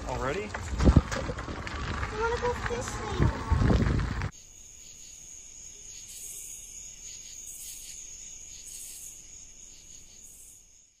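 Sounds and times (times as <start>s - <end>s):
insect trilling: 4.3s - 11.0s.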